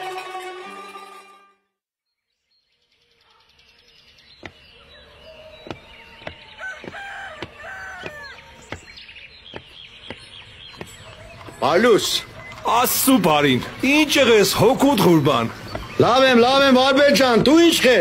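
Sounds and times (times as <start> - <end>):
small birds chirping: 2.1 - 18.0
footsteps on hard ground: 4.4 - 4.7, 5.4 - 18.0
rooster crowing: 4.9 - 8.6.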